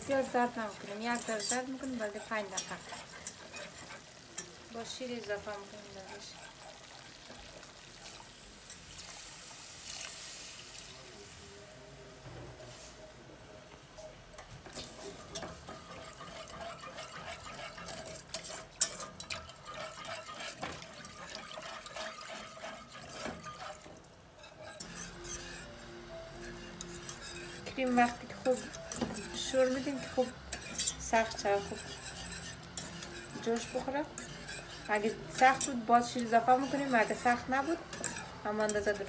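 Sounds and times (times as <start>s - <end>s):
whisk clicking against pan: 14.6s - 25.7s, 26.4s - 39.0s
milk pouring into saucepan: 19.4s - 23.9s.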